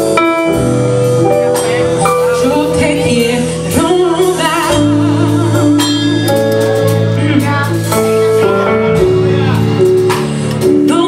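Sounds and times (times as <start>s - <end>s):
guitar playing steady chords: 0.0s - 11.0s
woman singing with vibrato: 2.3s - 8.9s, 10.6s - 11.0s.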